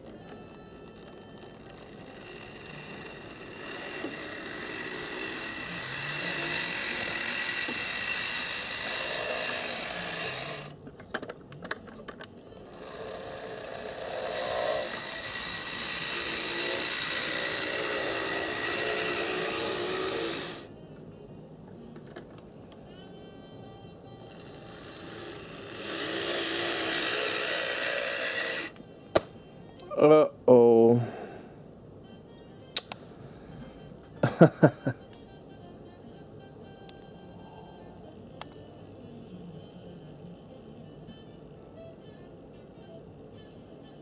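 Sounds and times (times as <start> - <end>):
model train motor whine: 0.2 - 10.8, 12.5 - 20.7, 24.3 - 28.8.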